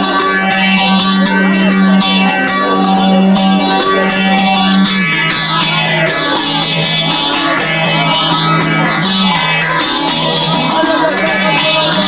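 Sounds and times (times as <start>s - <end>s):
plucked lute melody over drone: 0.0s - 12.0s.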